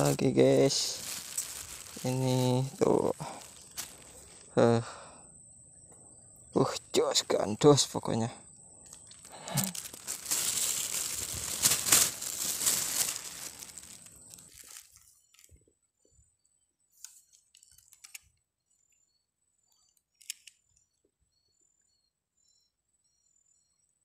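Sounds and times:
rustling and crackling: 0:00.0 - 0:04.6, 0:08.8 - 0:15.6.

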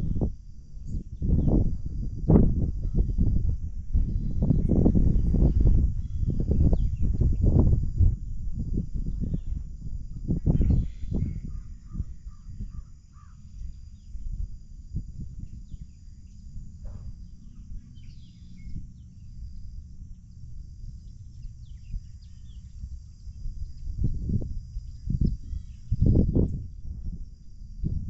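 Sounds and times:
wind rumbling on microphone: 0:00.0 - 0:28.0
birds calling faintly: 0:04.0 - 0:07.6, 0:09.1 - 0:14.3, 0:15.4 - 0:24.2, 0:24.8 - 0:26.7.

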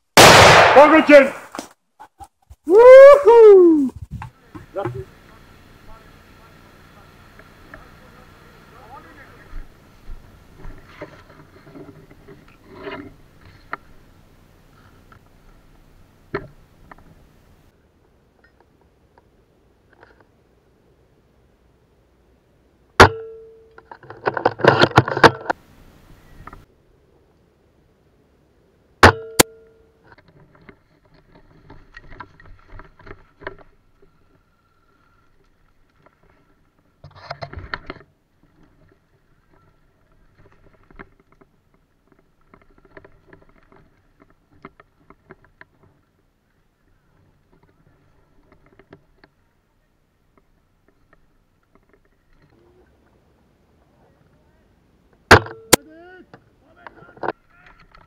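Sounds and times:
airsoft rifle shot with spring twang: 0:00.2 - 0:01.0
airsoft rifle sharp crack: 0:00.2 - 0:01.7, 0:55.3 - 0:55.8
short voice-like call: 0:01.3 - 0:04.0
handling clicks and rustles: 0:23.2 - 0:25.6, 0:29.1 - 0:46.4.

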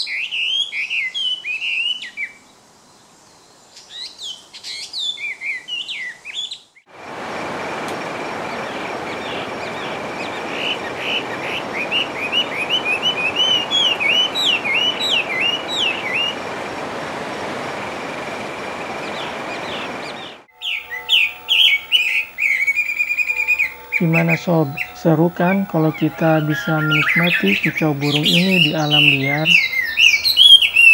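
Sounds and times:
bird singing whistled notes: 0:09.2 - 0:16.4, 0:19.1 - 0:30.9
thin high tone: 0:20.5 - 0:29.8.

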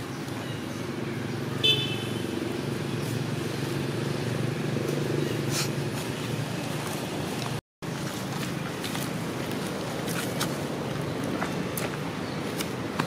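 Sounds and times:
vehicle engine humming: 0:00.2 - 0:13.0
car horn toot: 0:01.6 - 0:02.2.

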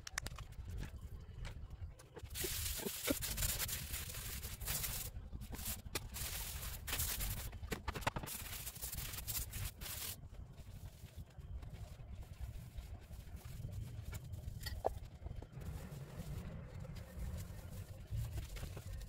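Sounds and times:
scrubbing pad on stone: 0:08.3 - 0:19.0.

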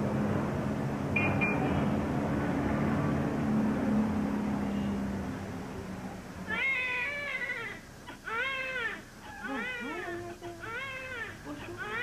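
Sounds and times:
street traffic noise: 0:00.0 - 0:12.0
newborn baby crying: 0:06.5 - 0:12.0.

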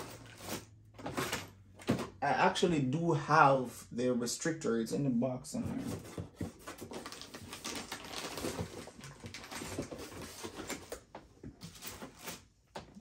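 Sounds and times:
rummaging through box of parts: 0:00.0 - 0:02.2, 0:05.7 - 0:12.4.

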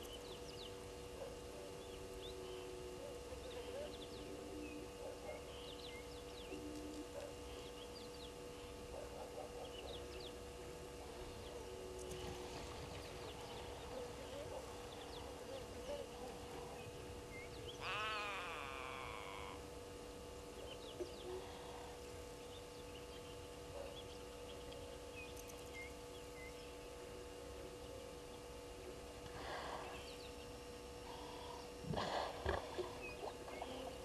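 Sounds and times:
steady hum: 0:00.0 - 0:34.0
loud wavering animal call: 0:17.7 - 0:19.7.

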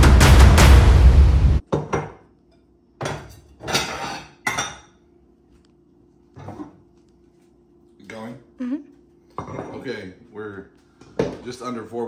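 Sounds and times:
music: 0:00.0 - 0:01.6
bowls and dishes clinking: 0:01.8 - 0:05.0, 0:09.3 - 0:10.0.

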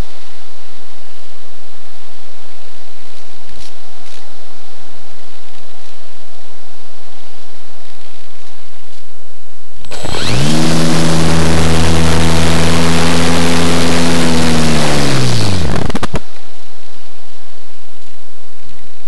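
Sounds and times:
electric motor and propeller whine: 0:09.9 - 0:16.2.

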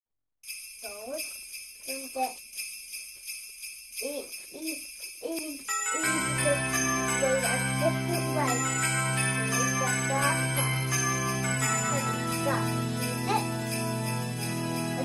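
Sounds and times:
sleigh bells shaken: 0:00.4 - 0:15.0
bass backing music: 0:06.3 - 0:15.0.

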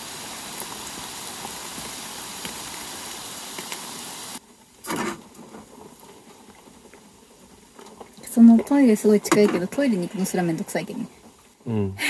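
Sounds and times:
heavy rain falling: 0:00.0 - 0:11.7.

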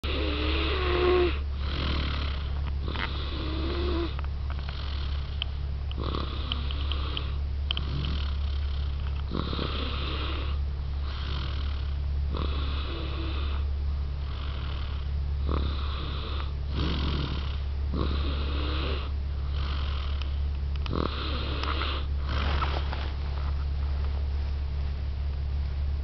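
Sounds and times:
baby snoring: 0:00.0 - 0:05.4, 0:06.0 - 0:23.0
low humming tone: 0:00.0 - 0:26.0.

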